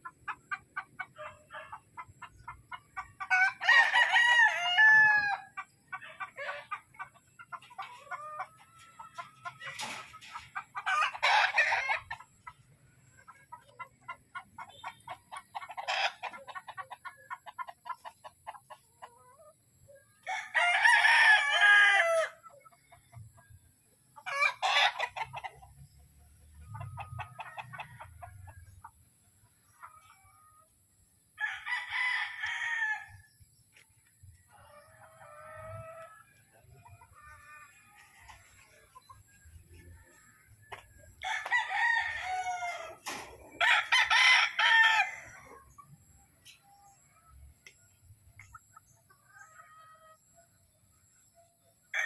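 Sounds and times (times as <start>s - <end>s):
roosters crowing: 3.2s - 5.6s, 8.0s - 12.2s, 20.2s - 22.4s, 24.2s - 25.3s, 31.4s - 33.3s, 39.6s - 45.8s.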